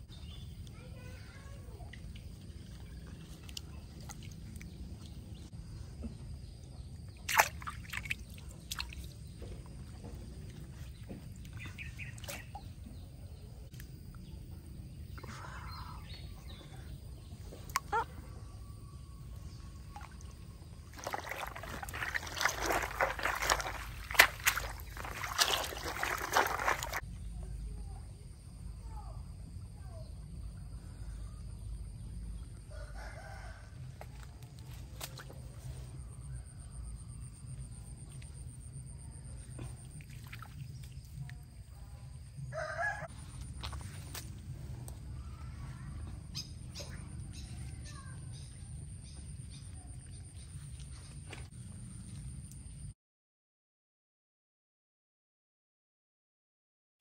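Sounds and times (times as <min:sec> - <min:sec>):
water sloshing and splashing: 0:01.8 - 0:14.1, 0:15.7 - 0:27.0, 0:33.7 - 0:36.4, 0:37.3 - 0:42.5, 0:43.1 - 0:47.7.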